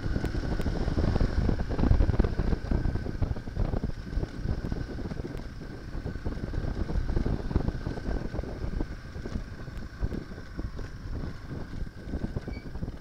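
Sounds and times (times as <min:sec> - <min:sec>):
motorcycle engine running: 0:00.0 - 0:13.0
wind buffeting microphone: 0:00.0 - 0:13.0.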